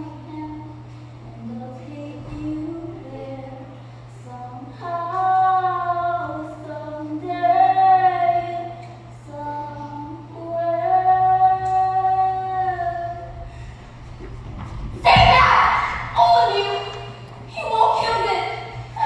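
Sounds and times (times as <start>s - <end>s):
woman singing slow song: 0.0s - 13.4s
steady low hum: 0.0s - 19.0s.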